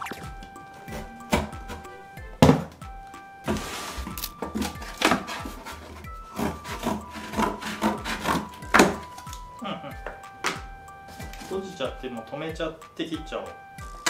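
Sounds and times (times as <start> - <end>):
light background music: 0.0 - 14.0
cutting cardboard: 3.5 - 9.3.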